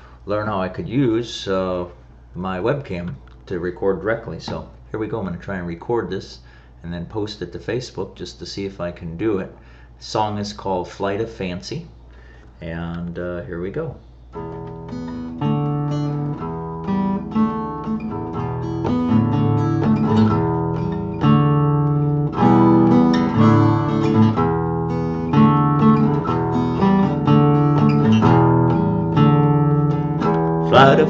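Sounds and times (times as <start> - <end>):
acoustic guitar chords: 14.3 - 31.0.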